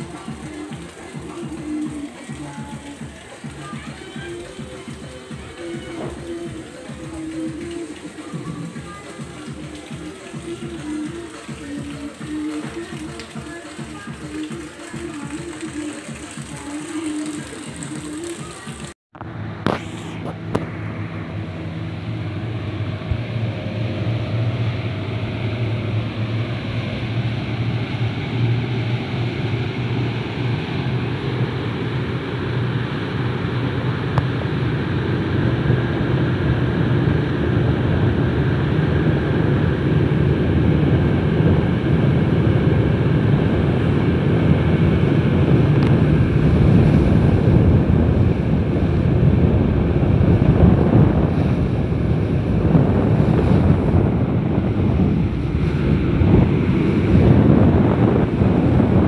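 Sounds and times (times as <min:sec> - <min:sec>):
speedboat engine running: 0:00.0 - 0:59.0
water rushing in wake: 0:00.0 - 0:59.0
wind buffeting microphone: 0:19.6 - 0:59.0.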